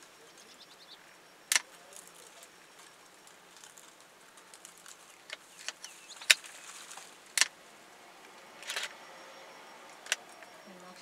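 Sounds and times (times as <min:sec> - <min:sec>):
faint bird chirp: 0:00.0 - 0:07.3, 0:08.2 - 0:11.0
branches snapping: 0:01.5 - 0:07.6.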